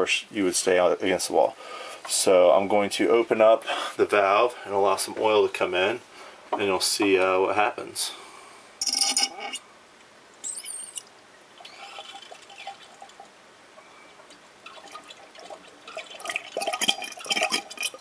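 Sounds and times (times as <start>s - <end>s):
high squeak: 10.4s - 11.0s
oil trickling into metal bowl: 11.6s - 13.3s, 14.3s - 18.0s.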